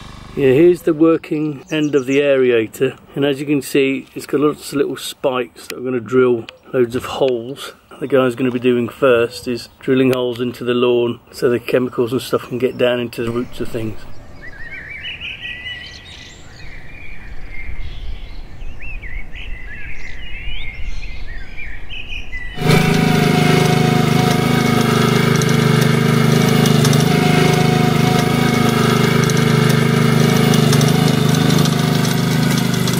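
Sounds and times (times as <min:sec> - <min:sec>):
lawn aerator petrol engine: 0:00.0 - 0:01.2, 0:13.3 - 0:14.1, 0:22.6 - 0:32.9
birds chirping: 0:00.0 - 0:32.9.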